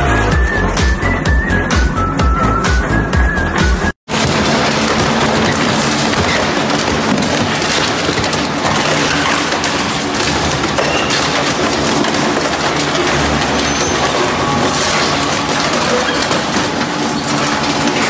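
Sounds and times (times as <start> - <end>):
shredder crushing with crackle: 4.1 - 18.0.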